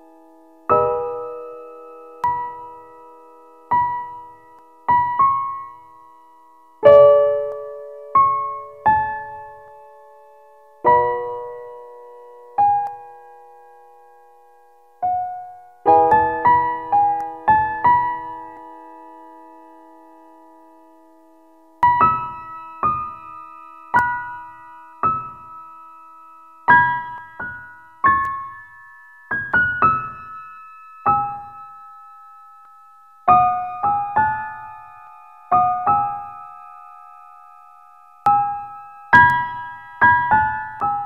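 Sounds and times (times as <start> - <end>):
slow piano melody: 0.0 - 41.0.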